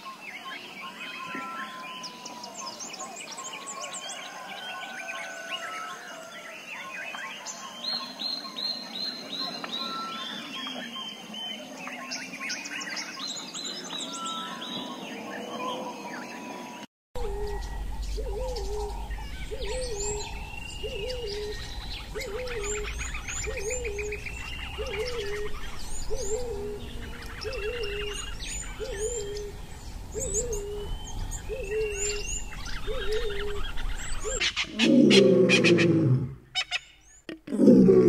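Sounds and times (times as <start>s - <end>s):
birds chirping and trilling: 0.0s - 38.0s
low hooting bird call: 17.2s - 37.0s.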